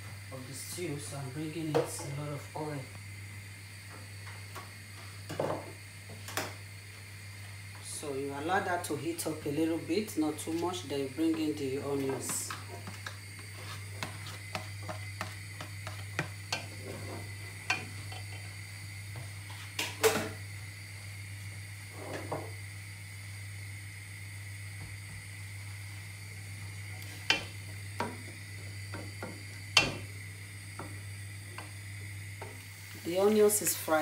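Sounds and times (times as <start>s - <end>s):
steady low hum: 0.0s - 34.0s
onions sizzling in oil: 12.2s - 34.0s.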